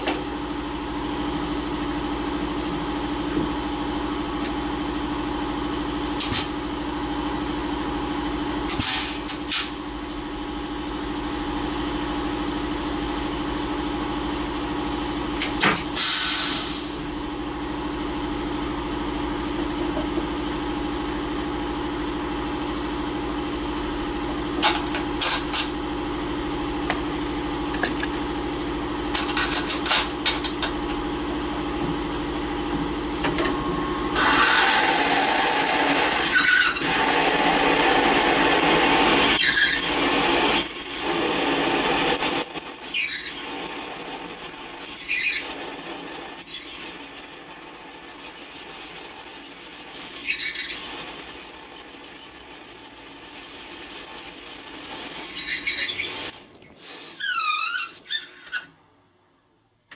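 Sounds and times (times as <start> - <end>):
high machining squeal: 34.2 - 38.6, 39.3 - 59.8
cutter rasping into metal: 34.2 - 52.8.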